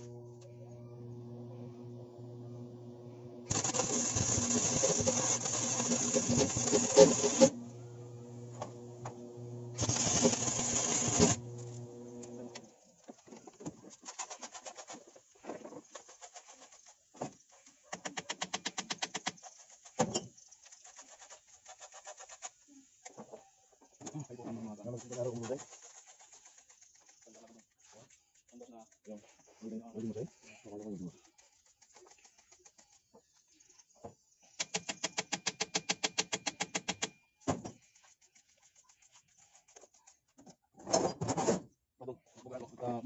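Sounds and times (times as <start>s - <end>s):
welder hum: 0.0s - 12.7s
arc welding crackle: 3.4s - 12.6s
spray bottle squirting water: 3.5s - 7.6s, 9.7s - 11.7s, 24.9s - 29.0s.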